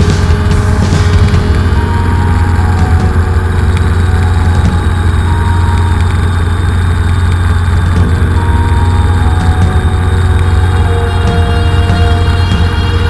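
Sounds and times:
helicopter engine and rotor drone: 0:00.0 - 0:13.0.

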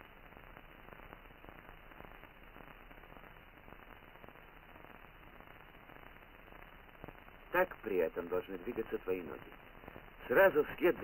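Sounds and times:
film soundtrack hiss and crackle: 0:00.0 - 0:11.0.

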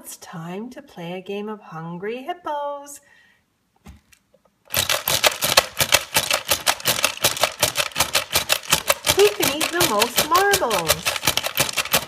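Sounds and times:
plastic toy hippos clacking: 0:04.7 - 0:12.0.

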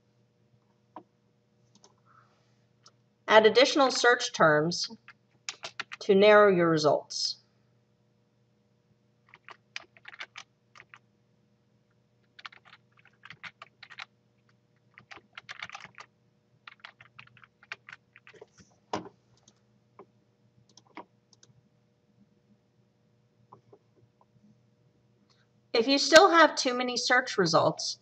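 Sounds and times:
computer keyboard typing: 0:04.9 - 0:06.0, 0:09.2 - 0:11.0, 0:12.2 - 0:19.6, 0:20.7 - 0:21.5.

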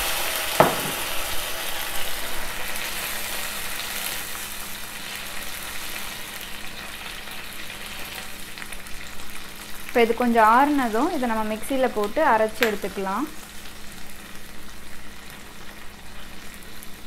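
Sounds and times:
liquid sizzling in a hot pan: 0:00.0 - 0:17.0
short knock: 0:00.6 - 0:01.1.

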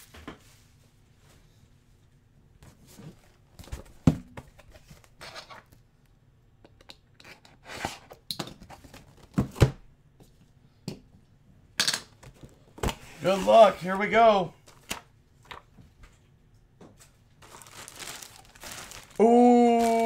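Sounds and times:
cardboard scraping and rustling: 0:12.4 - 0:14.0.

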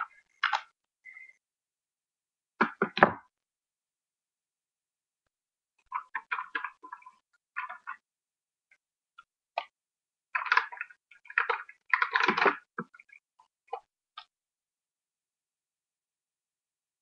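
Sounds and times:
plastic containers clicking and clattering: 0:10.4 - 0:13.1.

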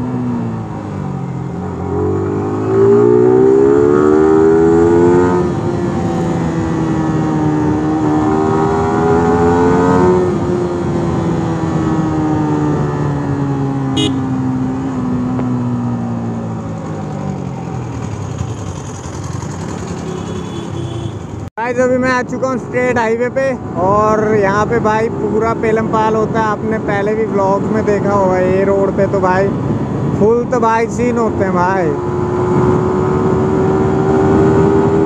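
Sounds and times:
motorcycle engine revving through gears: 0:00.0 - 0:21.5, 0:31.9 - 0:35.0.

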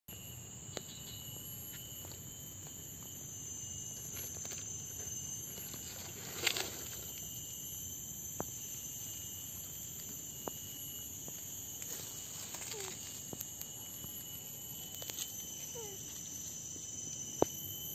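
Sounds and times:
high-pitched insect drone: 0:00.1 - 0:17.9
rustle in grass: 0:11.8 - 0:13.4
faint ticks: 0:12.6 - 0:14.2.

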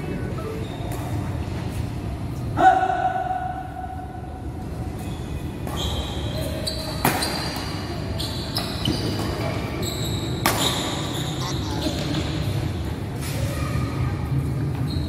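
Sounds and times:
shoes squeaking on floor: 0:00.0 - 0:01.3, 0:05.0 - 0:12.5, 0:14.8 - 0:15.0.

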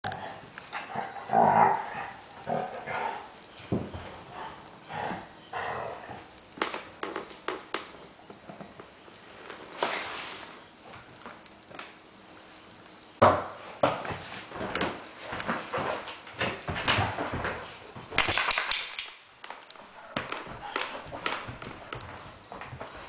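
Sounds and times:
dogs growling while play-fighting: 0:00.1 - 0:03.4, 0:04.2 - 0:06.3.

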